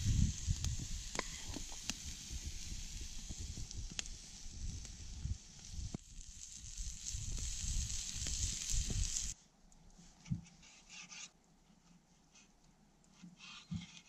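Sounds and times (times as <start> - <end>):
campfire hissing and crackling: 0.0 - 9.4.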